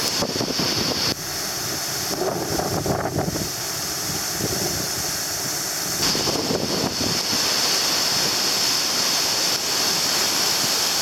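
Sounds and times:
water rushing through lock gates: 0.0 - 11.0
wind buffeting microphone: 2.0 - 5.2, 6.0 - 7.5.

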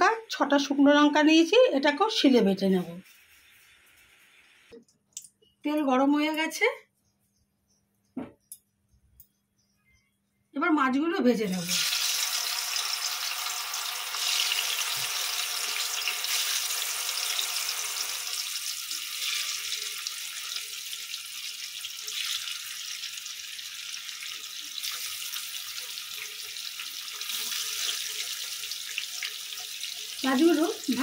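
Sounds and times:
fish sizzling in hot oil: 3.0 - 4.7, 11.6 - 31.0.

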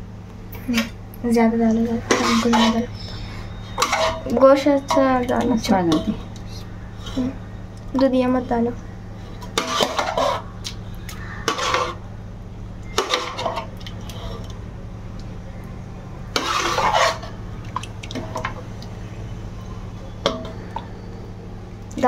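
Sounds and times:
low hum: 0.0 - 22.0
spoon scraping metal pot: 2.0 - 2.9, 3.5 - 6.3, 9.4 - 10.5, 11.4 - 12.0, 13.0 - 14.5, 16.3 - 17.4.

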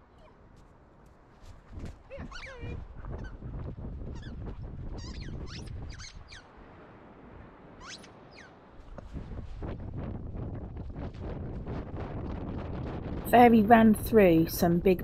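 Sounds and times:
low rumble of wind: 0.0 - 15.0
short high squeaks: 7.8 - 8.5.

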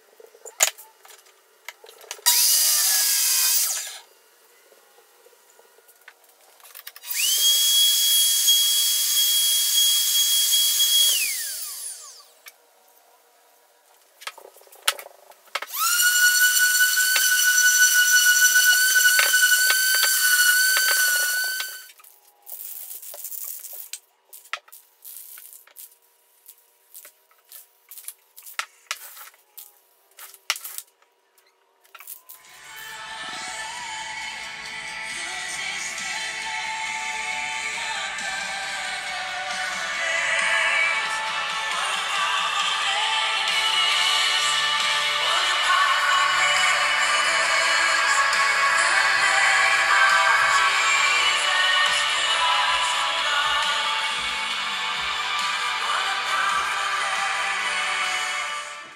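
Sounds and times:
router whining: 2.2 - 4.0, 7.0 - 12.4, 15.7 - 21.9
orbit sander whining: 15.7 - 21.9.

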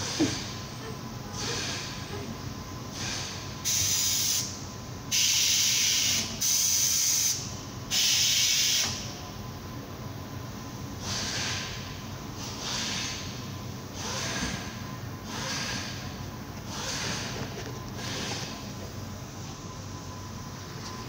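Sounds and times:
compressed air hissing: 3.0 - 4.5, 5.1 - 8.9.

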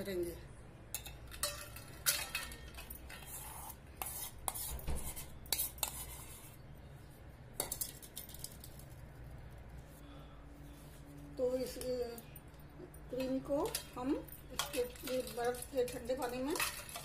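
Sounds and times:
spoon scraping steel bowl: 1.0 - 6.6, 13.1 - 17.0.

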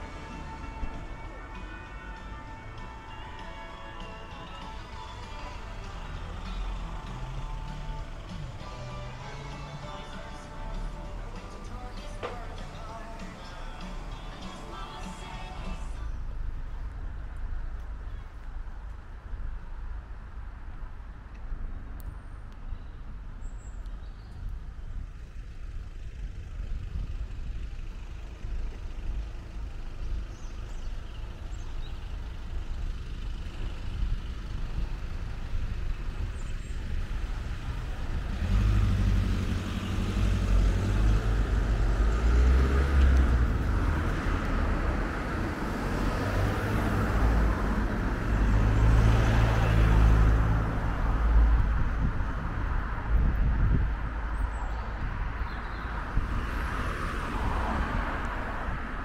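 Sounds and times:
vehicle engine and tyre noise: 0.0 - 59.0.

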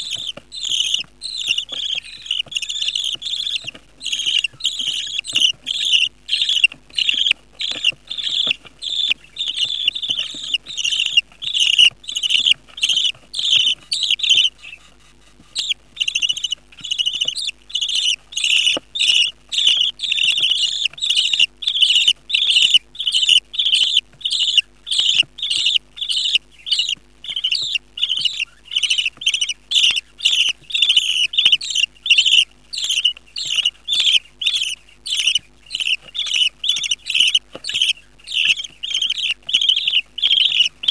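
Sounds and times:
budgerigar chicks cheeping: 0.0 - 40.9.

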